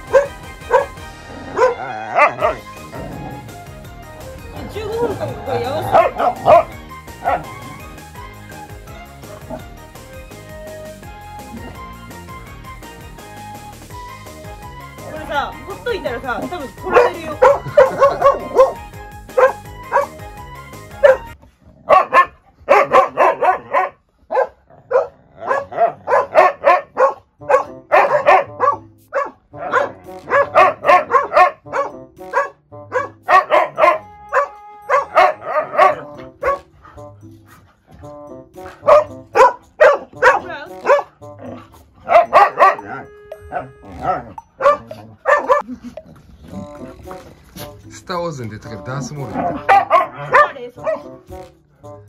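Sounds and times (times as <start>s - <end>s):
dogs barking: 0.0s - 3.6s, 4.5s - 8.0s, 16.3s - 37.6s, 38.6s - 45.8s, 49.0s - 51.5s
light background music: 0.0s - 52.0s.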